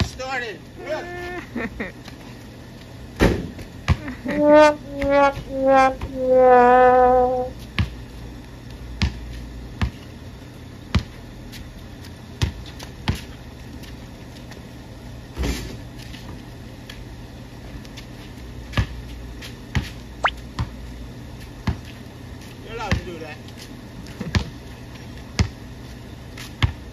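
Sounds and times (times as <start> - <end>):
basketball bouncing on concrete: 3.2 - 4.0, 7.8 - 8.0, 9.0 - 10.0, 10.9 - 11.2, 12.4 - 13.3, 18.7 - 19.0, 19.7 - 20.8, 21.6 - 21.9, 25.4 - 25.6, 26.6 - 26.8.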